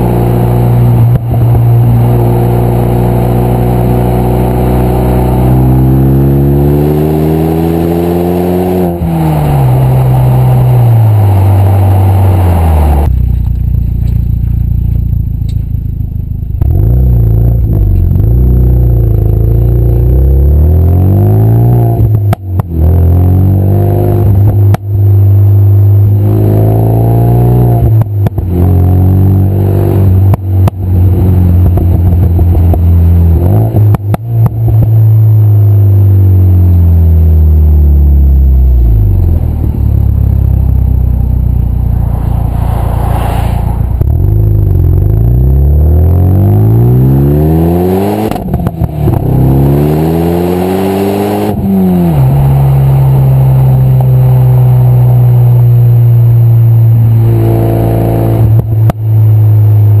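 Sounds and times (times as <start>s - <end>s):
car engine exhaust while driving: 0.0s - 60.0s
exhaust pops and crackles: 10.7s - 18.4s, 22.0s - 22.8s, 24.3s - 25.0s, 27.8s - 28.5s, 30.0s - 36.1s, 48.2s - 49.5s, 58.4s - 60.0s.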